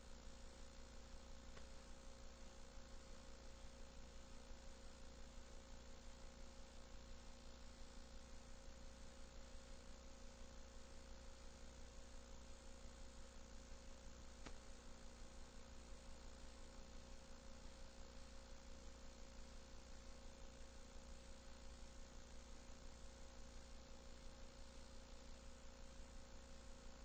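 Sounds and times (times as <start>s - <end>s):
tape hiss: 0.0s - 3.6s, 12.4s - 23.1s
electrical hum: 0.0s - 27.0s
faint click: 1.5s - 1.7s, 14.4s - 14.6s.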